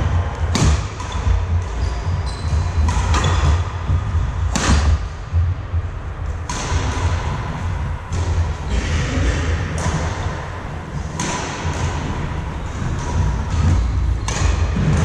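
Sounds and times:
steady low rumble: 0.0s - 15.0s
racket hitting shuttlecock: 0.1s - 5.2s, 6.3s - 15.0s.

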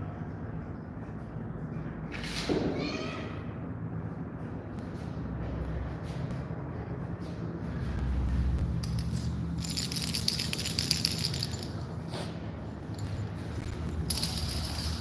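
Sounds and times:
steady low hum: 0.0s - 15.0s
jingly toy rattling: 8.8s - 11.9s, 14.0s - 15.0s.

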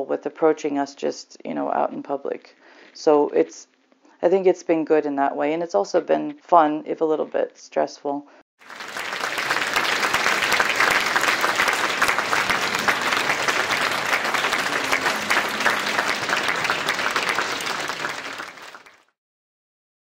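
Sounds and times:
audience applauding: 8.6s - 19.1s.

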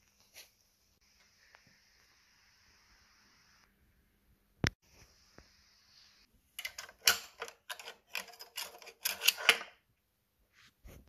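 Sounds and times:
screwdriver scraping and clicking: 6.6s - 9.8s.

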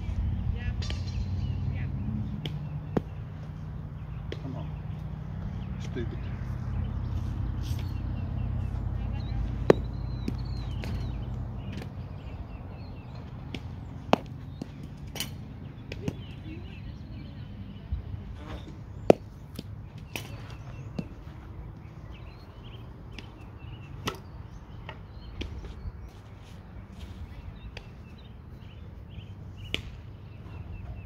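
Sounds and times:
birds chirping: 0.0s - 31.0s
bat hitting softballs: 0.7s - 5.2s, 7.6s - 16.7s, 18.4s - 25.8s, 27.6s - 30.8s.

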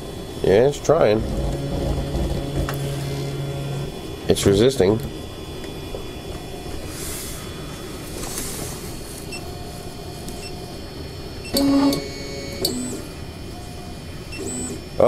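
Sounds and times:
stepper motor buzzing: 1.1s - 4.2s.

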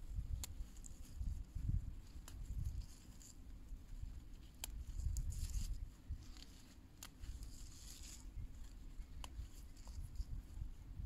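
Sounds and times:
low rumble on microphone: 0.0s - 6.6s, 7.2s - 11.0s
leaves rustling: 0.0s - 11.0s
plant stems snapping: 0.2s - 1.2s, 2.0s - 3.4s, 4.2s - 10.2s.

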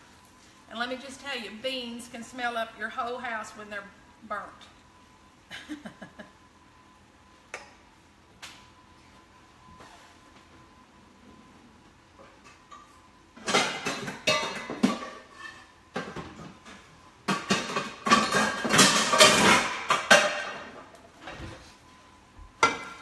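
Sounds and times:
steel bowls and pans clattering: 12.5s - 16.4s, 17.3s - 20.8s.

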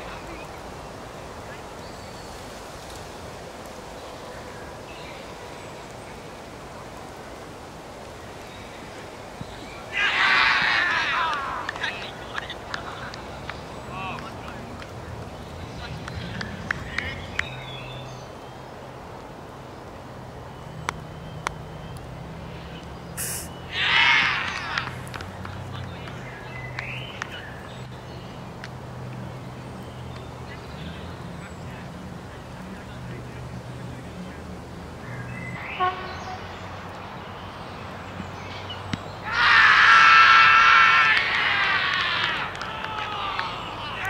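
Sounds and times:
faint distant calls: 0.0s - 44.0s
fielders shouting appeal: 9.8s - 13.0s, 23.2s - 25.9s, 39.2s - 44.0s.

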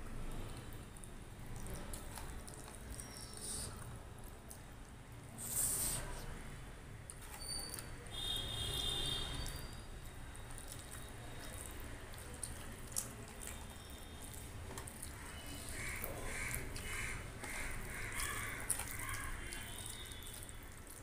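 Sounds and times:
fingers mixing food on a steel plate: 7.0s - 21.0s.

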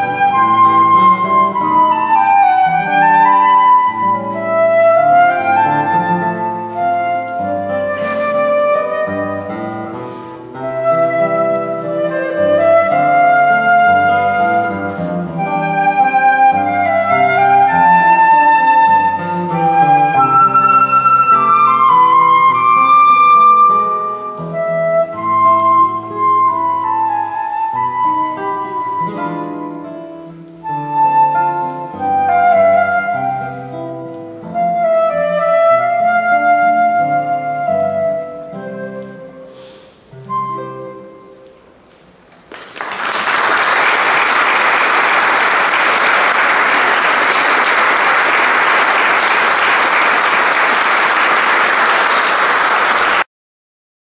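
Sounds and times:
flute and guitar playing: 0.0s - 42.0s
audience applause: 42.5s - 53.3s.

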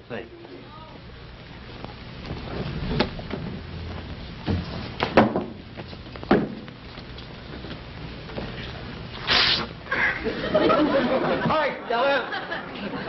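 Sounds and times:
steady low hum: 0.0s - 13.0s
knocks and thumps: 4.4s - 6.7s.

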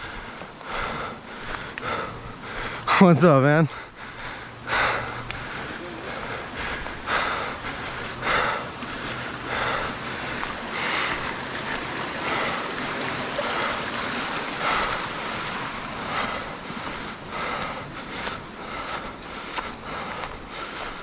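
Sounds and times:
rustling leaves and footsteps: 0.0s - 21.0s
steady noisy hiss: 0.0s - 21.0s.

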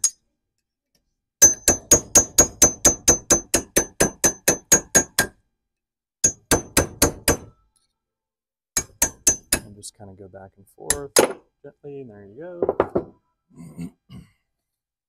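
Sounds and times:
hammer tapping steel punch: 1.4s - 5.4s, 8.8s - 9.7s.

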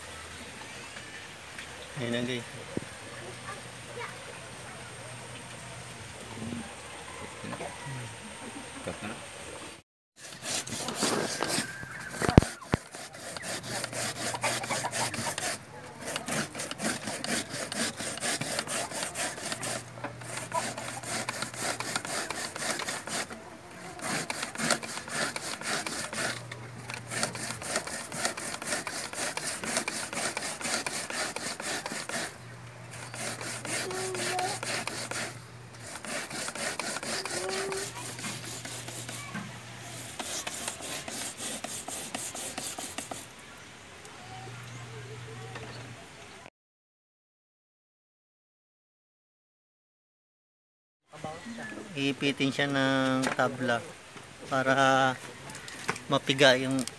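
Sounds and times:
grating on a metal grater: 10.2s - 43.3s.

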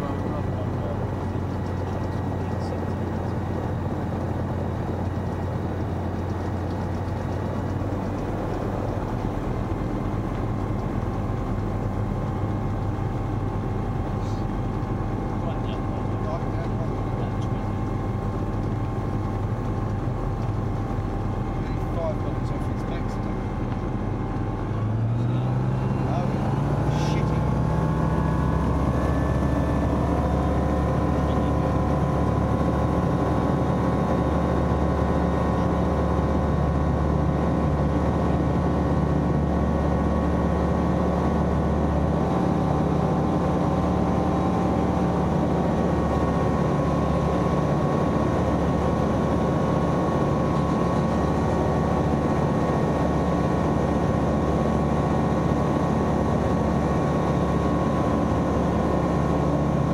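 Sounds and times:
light aircraft engine drone: 0.0s - 59.9s.

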